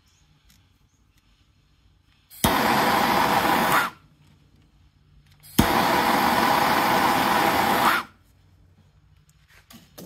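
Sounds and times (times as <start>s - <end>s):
torch igniter click: 2.3s - 4.0s, 5.3s - 8.1s
torch flame hissing: 2.3s - 4.1s, 5.4s - 8.2s.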